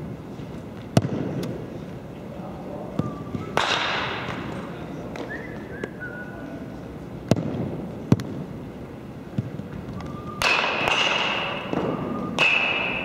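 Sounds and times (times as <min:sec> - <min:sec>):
baseball smacking floor and glove: 0:03.6 - 0:05.3, 0:07.3 - 0:08.4
sneakers squeaking on gym floor: 0:11.2 - 0:13.0.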